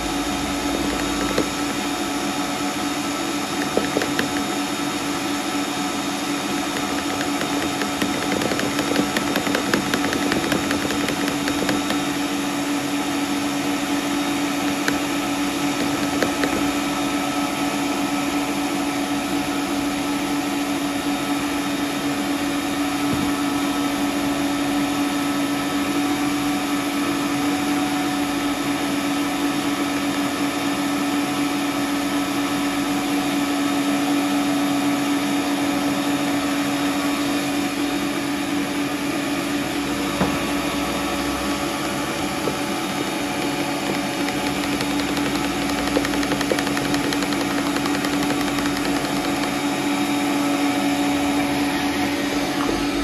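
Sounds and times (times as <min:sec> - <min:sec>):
stand mixer motor hum: 0:00.0 - 0:34.2, 0:36.1 - 0:53.0
tapping and scraping of plastic sieve: 0:00.6 - 0:02.0, 0:03.5 - 0:04.7, 0:06.7 - 0:12.3, 0:14.6 - 0:16.9, 0:41.8 - 0:49.8.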